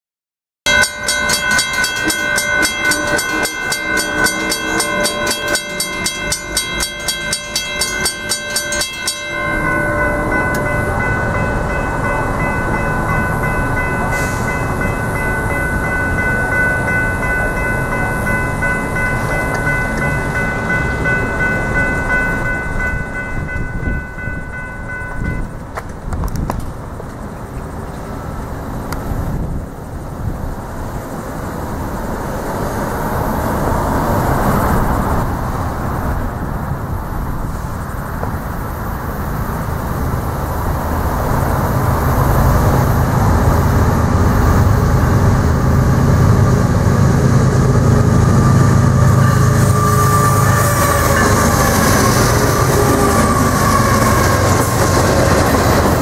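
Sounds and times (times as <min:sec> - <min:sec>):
steady broad noise: 0:00.7 - 0:22.4
crossing warning bells ringing: 0:00.7 - 0:56.0.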